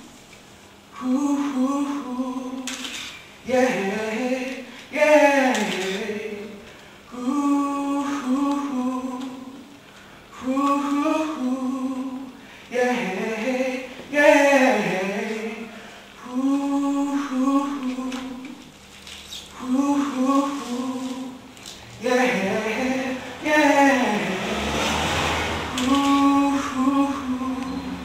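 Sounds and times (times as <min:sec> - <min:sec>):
solo voice singing: 0:00.9 - 0:18.7, 0:19.5 - 0:28.0
singer breathing: 0:04.6 - 0:05.0, 0:09.8 - 0:10.4, 0:12.4 - 0:12.8, 0:15.7 - 0:16.2, 0:23.2 - 0:23.4.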